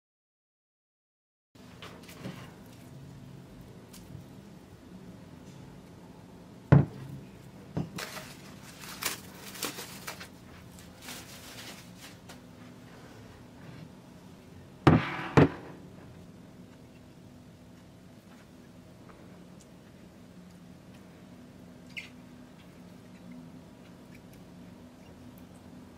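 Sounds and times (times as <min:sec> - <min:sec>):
glass knocking on table: 0:06.7 - 0:07.0
cling film crinkling: 0:08.0 - 0:12.5.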